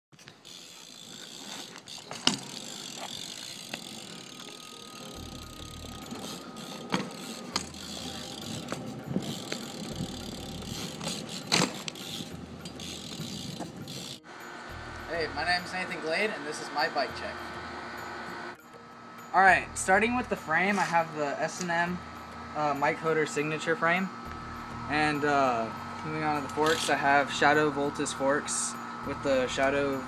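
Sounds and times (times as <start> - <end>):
bike rolling on asphalt: 0.1 - 16.7
freewheel ratchet buzzing: 0.2 - 15.8, 24.2 - 30.0.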